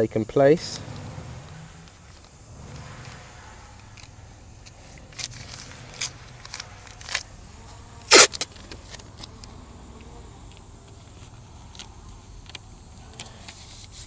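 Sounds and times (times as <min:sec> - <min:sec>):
masking tape ripping: 0:05.0 - 0:10.1.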